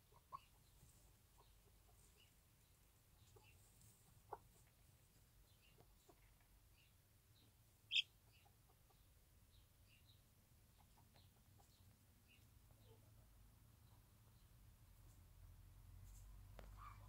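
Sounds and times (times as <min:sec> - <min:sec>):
chicks peeping: 0:00.0 - 0:13.1
hen clucking softly: 0:00.0 - 0:13.2, 0:16.6 - 0:17.0.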